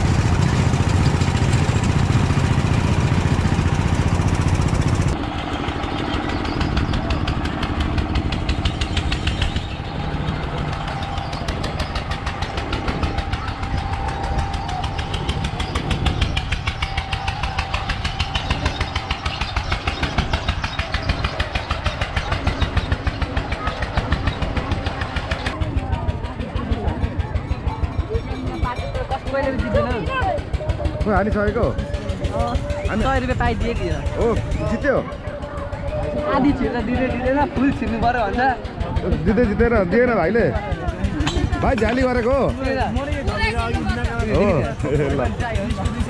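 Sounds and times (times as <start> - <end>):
loud low rumble: 0.0 - 28.0
engine running with fast pulse: 0.0 - 46.0
fairground ride machinery: 0.0 - 46.0.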